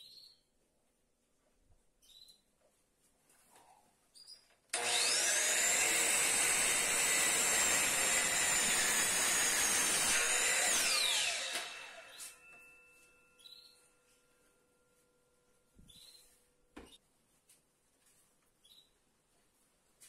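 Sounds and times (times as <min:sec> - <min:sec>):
miter saw motor whining: 0:04.8 - 0:12.4
saw blade cutting wood: 0:04.8 - 0:12.5.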